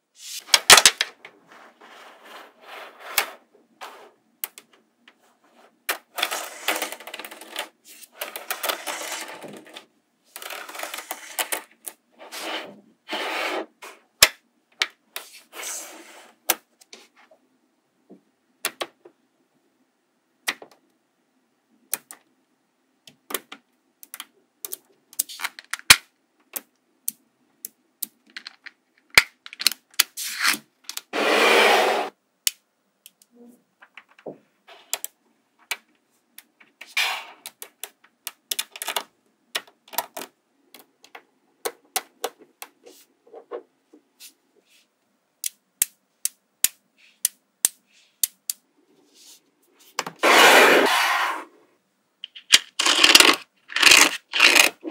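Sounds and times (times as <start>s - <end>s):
magnetic balls clicking together: 52.2s - 54.8s.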